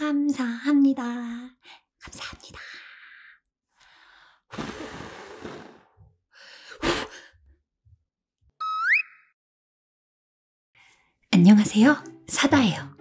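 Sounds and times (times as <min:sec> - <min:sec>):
person blowing out candles: 0:04.5 - 0:06.0.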